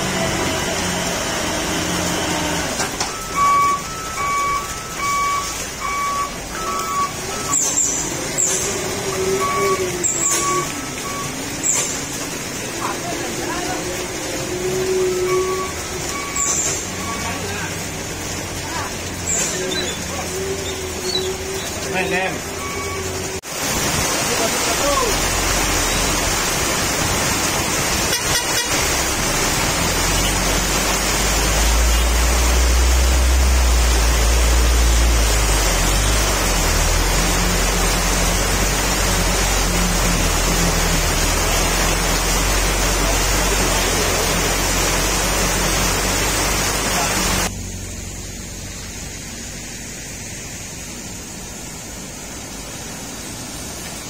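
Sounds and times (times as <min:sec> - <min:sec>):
diesel truck engine drone: 0:00.0 - 0:54.0
heavy rain pouring: 0:00.0 - 0:54.0
vehicle horn toot: 0:28.0 - 0:29.0.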